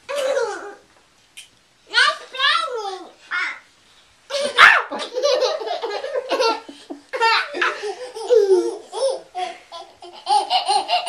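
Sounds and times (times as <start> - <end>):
toddlers giggling: 4.3 - 11.0.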